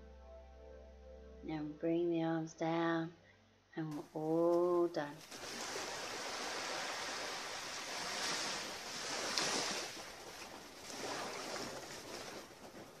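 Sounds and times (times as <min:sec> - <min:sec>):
small waves washing on shore: 0:05.2 - 0:13.0.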